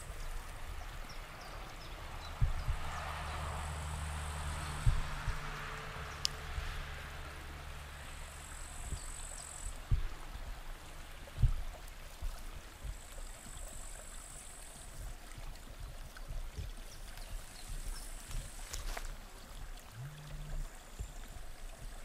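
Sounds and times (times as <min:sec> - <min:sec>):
stream trickling: 0:00.0 - 0:22.0
low thumps: 0:02.2 - 0:03.3, 0:04.5 - 0:06.9, 0:09.8 - 0:10.7, 0:19.9 - 0:21.2.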